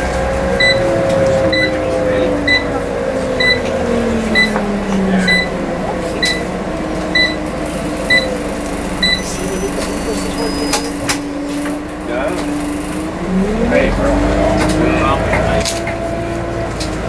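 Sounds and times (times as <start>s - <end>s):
bus engine and drivetrain: 0.0s - 17.0s
short electronic beeps: 3.4s - 3.6s, 8.1s - 8.3s, 9.0s - 11.0s.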